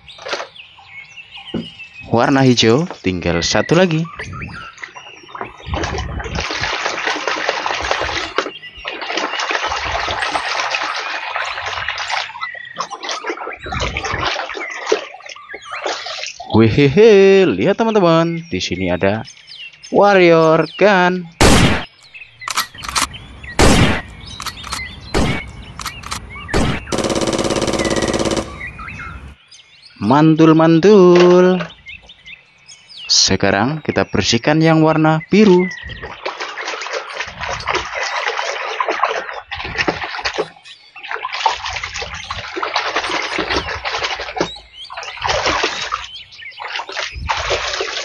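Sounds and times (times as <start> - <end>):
water splashing over plastic toy: 5.4 - 16.4, 36.0 - 48.0
single gunshots: 21.4 - 21.9, 22.5 - 28.8
machine-gun rattle: 22.4 - 29.3.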